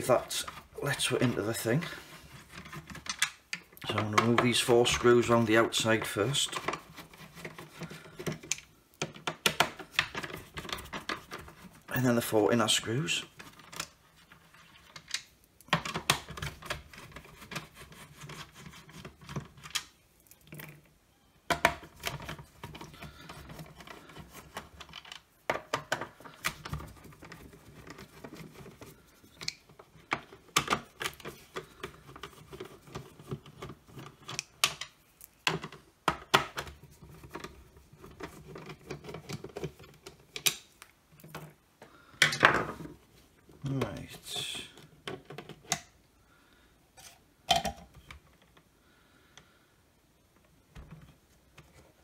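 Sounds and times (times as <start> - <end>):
scratching and rubbing on plastic: 0.0 - 3.3, 3.9 - 8.5, 9.2 - 15.2, 15.8 - 19.7, 21.9 - 36.0, 36.6 - 40.4.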